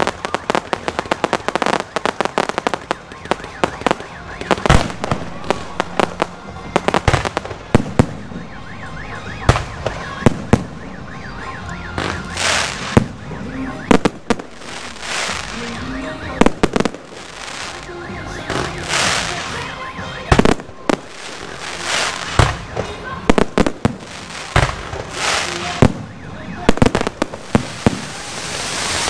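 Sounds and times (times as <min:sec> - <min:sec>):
fireworks bursting: 0:00.0 - 0:29.0
crackling hiss: 0:14.0 - 0:18.0, 0:20.9 - 0:22.6, 0:26.8 - 0:29.0.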